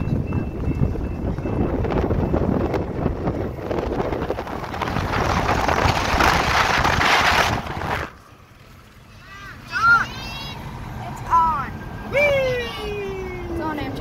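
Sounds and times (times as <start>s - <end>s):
wind rushing over microphone: 0.0s - 8.2s
road rumble: 0.0s - 14.0s.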